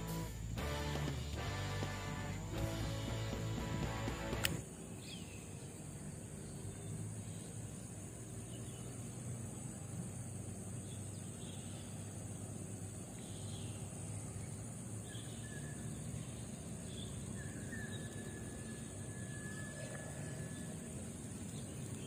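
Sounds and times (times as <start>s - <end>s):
insect drone: 0.0s - 22.0s
faint bird chirps: 13.1s - 22.0s.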